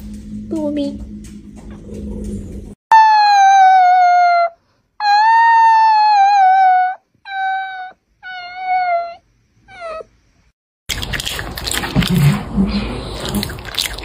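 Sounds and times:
dog howling: 2.9 - 10.1.

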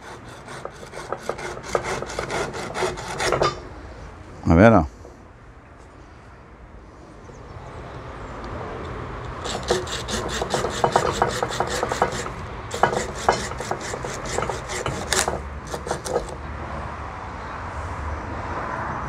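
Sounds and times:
hand saw rasping through branch: 0.0 - 3.6, 9.4 - 16.4.

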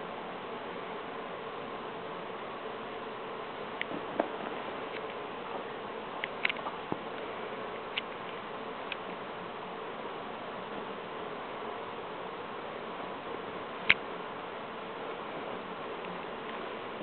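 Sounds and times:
steady buzzing hiss: 0.0 - 17.0.

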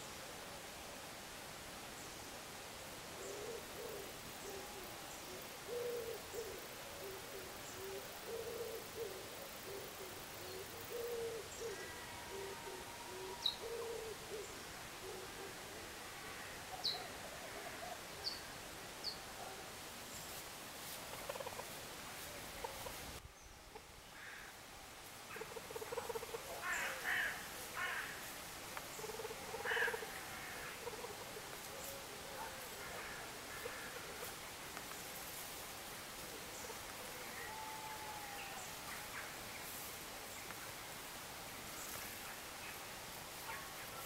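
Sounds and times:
low animal calls: 36.6 - 39.2.

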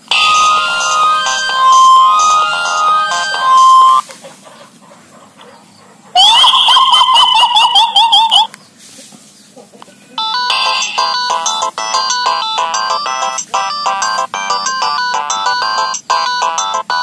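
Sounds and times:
electronic ringtone melody: 0.0 - 4.0, 10.2 - 17.0
fast rising electronic chirps: 0.1 - 4.0, 10.2 - 17.0.

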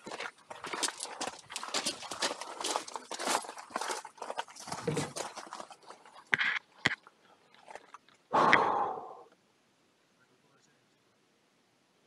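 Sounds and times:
footsteps on gravel: 0.0 - 7.0.

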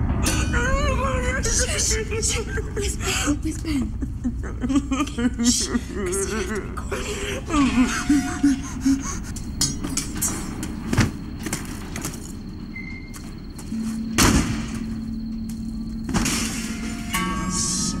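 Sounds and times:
low steady drone: 0.0 - 18.0.

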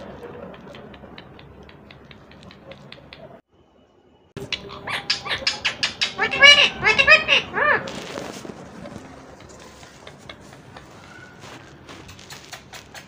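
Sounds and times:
parrot chattering: 0.6 - 3.4, 4.4 - 7.9, 12.2 - 13.0.

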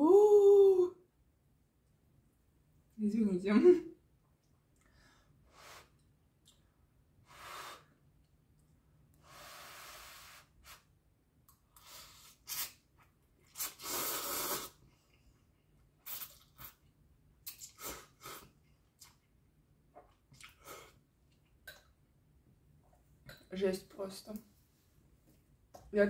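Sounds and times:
woman breathing while eating: 4.8 - 6.0.

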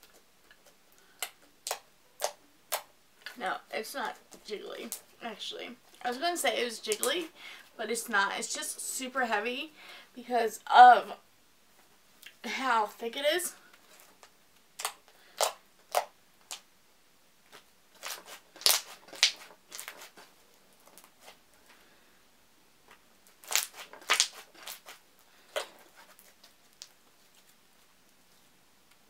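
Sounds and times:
slime squeezed with sticky pops: 14.8 - 16.6, 17.5 - 20.2, 23.4 - 25.0.

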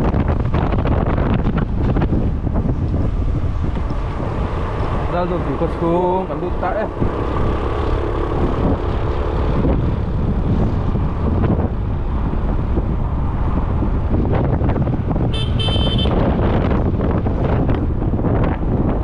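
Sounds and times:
scooter road noise: 0.0 - 19.0
wind rumble on microphone: 0.0 - 19.0
high horn beep: 15.3 - 16.3.

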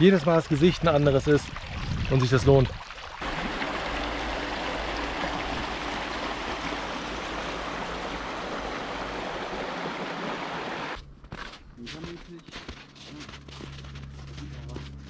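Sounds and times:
brook water running: 0.0 - 11.0.

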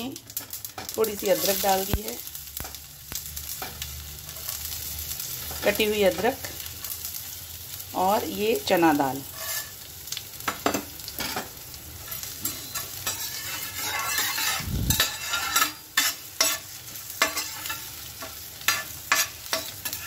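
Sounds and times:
spices sizzling in hot oil: 0.0 - 20.0
metal spoon scraping steel pan: 9.3 - 9.8, 12.4 - 20.0.

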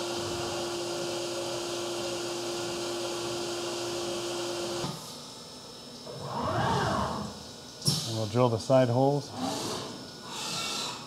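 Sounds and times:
milling machine whine: 0.0 - 5.0.

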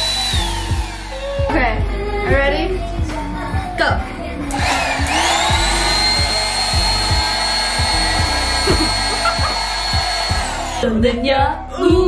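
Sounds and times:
electric balloon pump whining: 0.0 - 1.6, 4.5 - 11.0.

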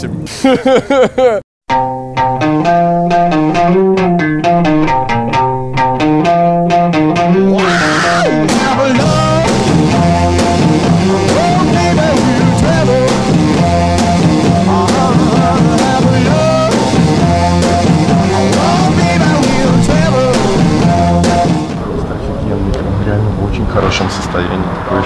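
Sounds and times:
rock band music: 1.7 - 21.8
electric guitar riff: 1.7 - 22.0
steady drum beat: 8.3 - 21.8.

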